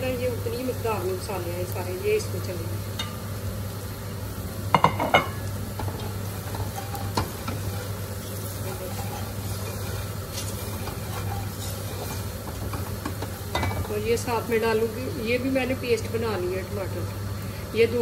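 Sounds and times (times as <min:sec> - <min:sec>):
light sizzle of frying: 0:00.0 - 0:18.0
spatula scraping a pot: 0:06.0 - 0:13.7.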